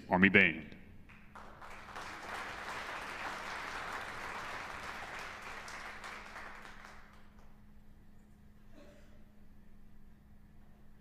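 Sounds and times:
audience applauding: 0:01.1 - 0:07.5.

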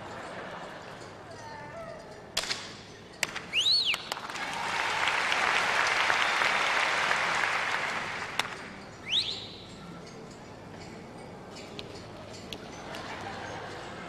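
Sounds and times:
gliding whistle: 0:03.5 - 0:04.1, 0:09.0 - 0:09.7
audience applauding: 0:04.0 - 0:08.7.

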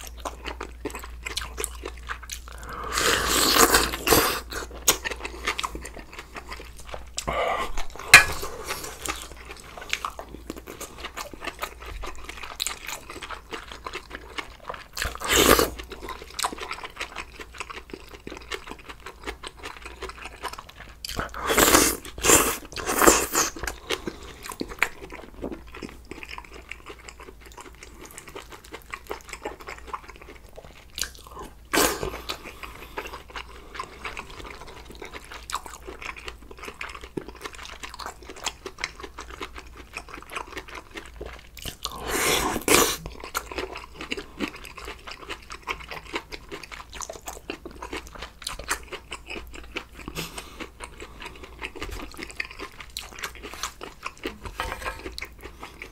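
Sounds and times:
wet chewing: 0:00.0 - 0:55.9
noodle slurps: 0:41.9 - 0:43.1.

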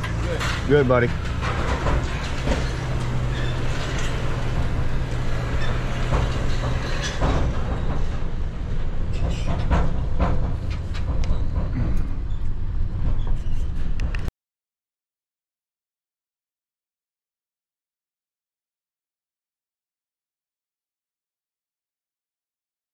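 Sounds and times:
rattles and knocks: 0:00.0 - 0:14.3
truck engine and road noise: 0:00.0 - 0:14.3.

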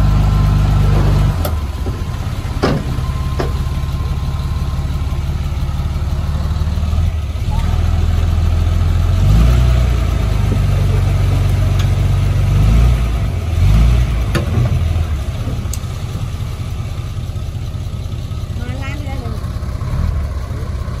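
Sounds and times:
bulldozer diesel engine revving: 0:00.0 - 0:21.0
metal clanks: 0:00.8 - 0:04.6.

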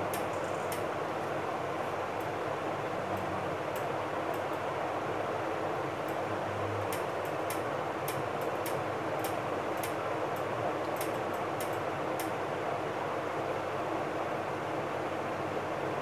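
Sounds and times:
steady rushing fan noise: 0:00.0 - 0:16.0
faint light ticks: 0:06.9 - 0:12.4.

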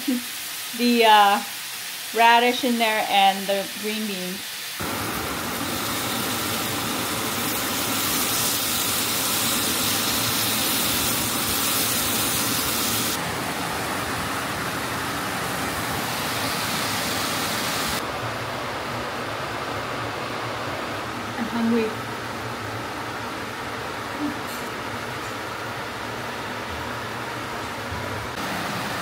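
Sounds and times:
meat sizzling in frying pan: 0:00.1 - 0:03.4, 0:04.3 - 0:13.2.

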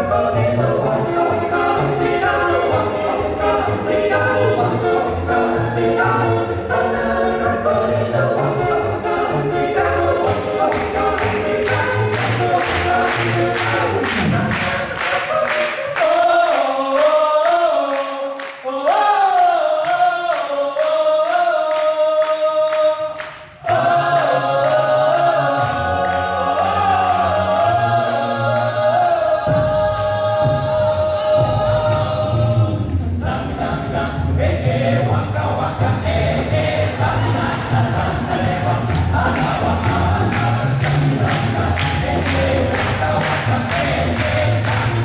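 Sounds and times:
beatboxed rhythm: 0:00.0 - 0:45.0
male a cappella group singing: 0:00.0 - 0:45.0
sung bass line: 0:29.5 - 0:45.0.

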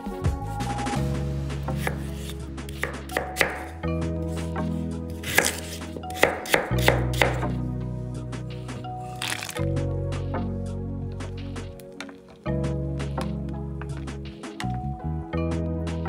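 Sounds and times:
background music: 0:00.0 - 0:16.0
knife chopping on cutting board: 0:01.8 - 0:03.7, 0:05.2 - 0:07.5.

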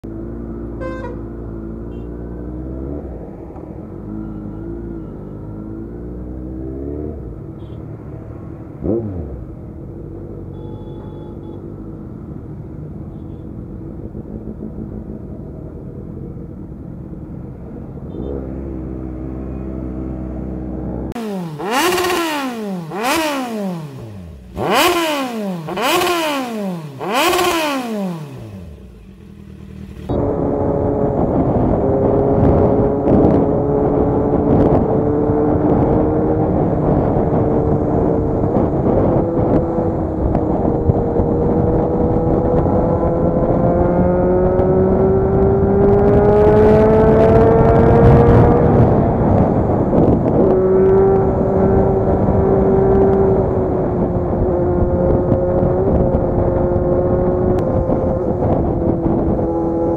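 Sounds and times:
motorcycle engine revving: 0:00.0 - 0:15.9, 0:18.1 - 0:59.9
motorcycle engines idling: 0:13.1 - 0:17.1, 0:27.0 - 0:30.2.

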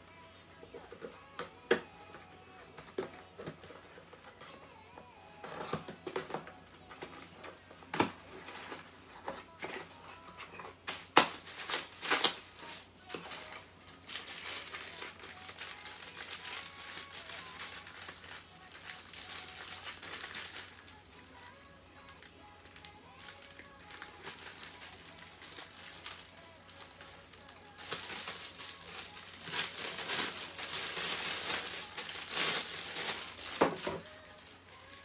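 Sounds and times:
packing tape ripping: 0:09.5 - 0:35.0
plastic bag crinkling: 0:10.2 - 0:35.0.

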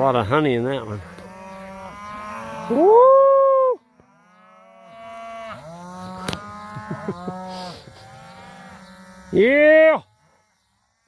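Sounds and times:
cattle mooing: 0:00.9 - 0:03.0, 0:03.8 - 0:10.6.

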